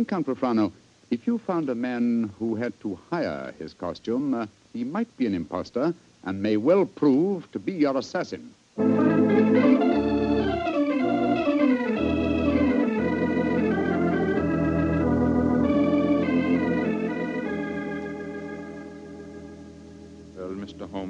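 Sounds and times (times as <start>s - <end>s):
organ chords: 8.8s - 21.0s.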